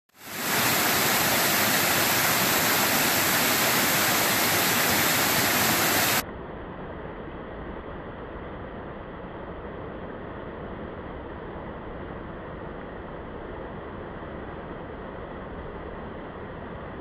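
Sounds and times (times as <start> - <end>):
waterfall rushing and splashing: 0.1 - 6.2.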